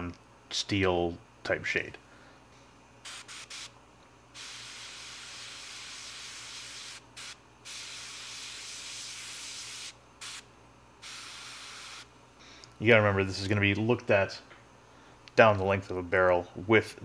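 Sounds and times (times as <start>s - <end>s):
airbrush hissing: 3.0s - 12.1s.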